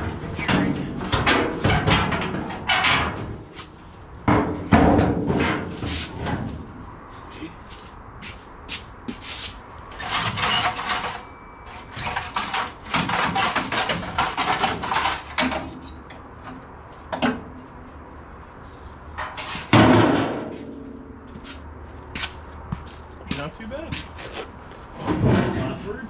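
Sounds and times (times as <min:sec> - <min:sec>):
metal floor pan clanking and scraping: 0:00.0 - 0:06.7, 0:10.0 - 0:16.0, 0:19.2 - 0:21.0, 0:25.0 - 0:25.9.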